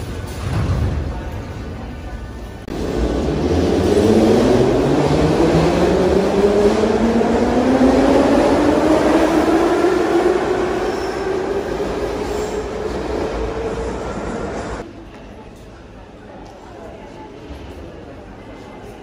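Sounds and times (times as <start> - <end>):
train cars rumbling: 2.5 - 14.8.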